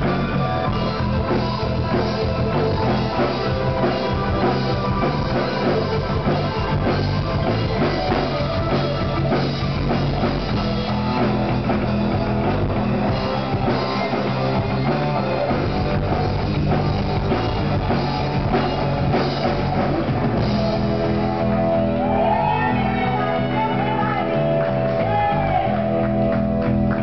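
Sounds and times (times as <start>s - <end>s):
bass guitar: 0.0s - 27.0s
drum kit: 0.0s - 27.0s
electric guitar: 0.0s - 27.0s
person singing: 22.0s - 26.1s.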